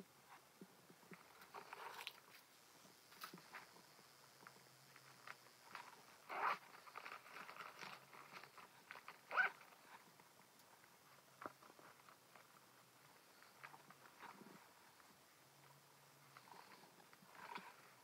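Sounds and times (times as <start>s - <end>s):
fabric rustling in a bag: 5.7s - 10.0s.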